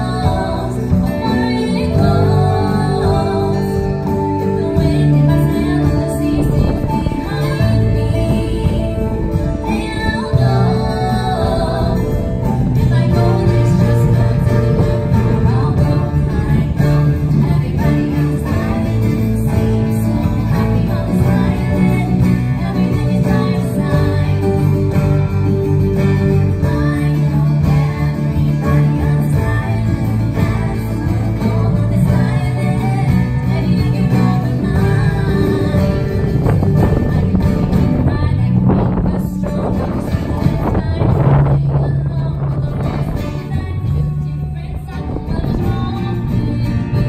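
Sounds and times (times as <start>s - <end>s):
acoustic guitars strumming: 0.0s - 47.0s
person singing: 0.0s - 47.0s.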